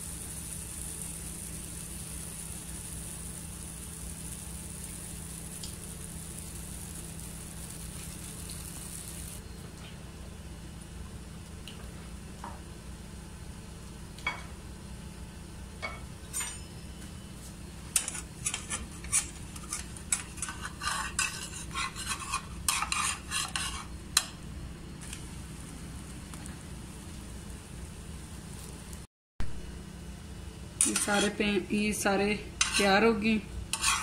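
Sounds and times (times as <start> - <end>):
steady low hum: 0.0 - 34.0
metal spatula scraping a frying pan: 16.3 - 16.7, 18.0 - 23.9, 30.8 - 31.4, 32.6 - 33.1, 33.7 - 34.0.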